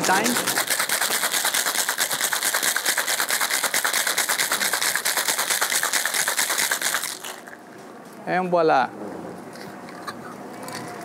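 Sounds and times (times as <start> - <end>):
ice rattling in cocktail shaker: 0.0 - 7.6.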